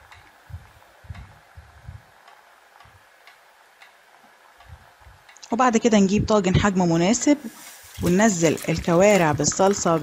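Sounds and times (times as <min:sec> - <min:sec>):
light ticks: 0:02.2 - 0:04.0.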